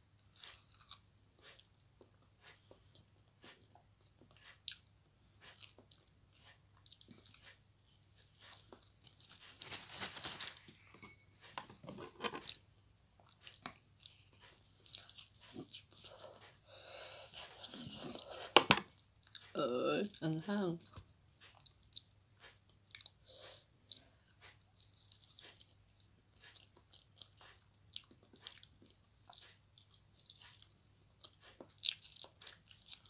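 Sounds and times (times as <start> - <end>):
person chewing food: 0.1 - 33.0
breathing: 16.0 - 17.6, 23.2 - 23.7.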